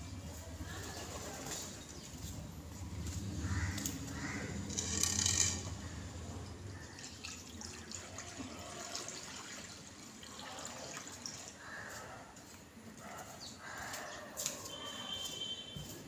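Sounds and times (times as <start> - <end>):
water pouring into a dish: 6.8 - 11.6.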